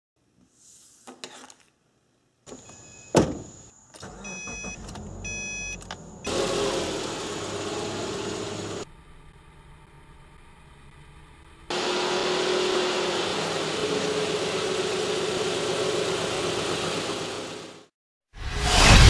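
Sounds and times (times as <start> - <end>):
car engine starting and running: 3.3 - 17.9
dashboard warning chime: 4.1 - 6.4.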